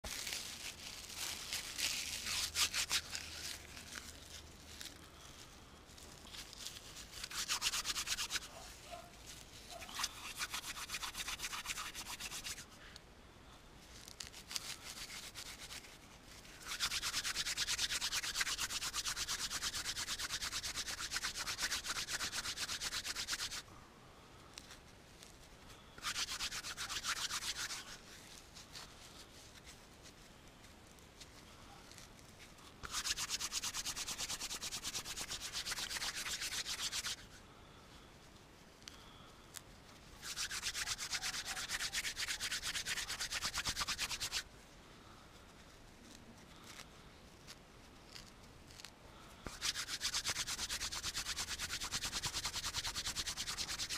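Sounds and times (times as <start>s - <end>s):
hands scratching dry grass: 0.0s - 12.9s, 13.8s - 23.7s, 24.5s - 37.4s, 38.2s - 53.9s.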